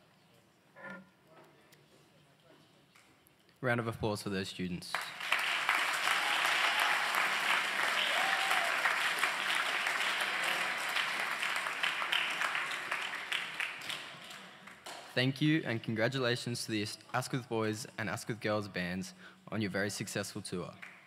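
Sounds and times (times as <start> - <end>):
audience applauding: 4.9 - 15.0.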